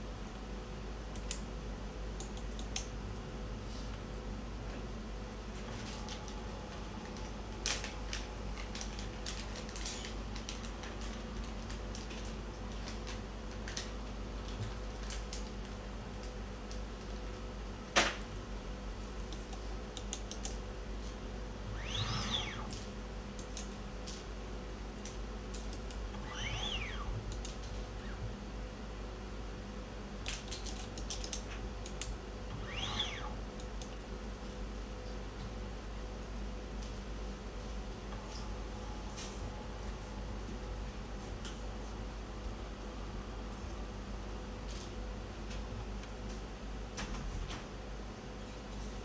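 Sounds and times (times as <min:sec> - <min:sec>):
low electrical hum: 0:00.0 - 0:49.0
brief squeaks: 0:26.2 - 0:27.1.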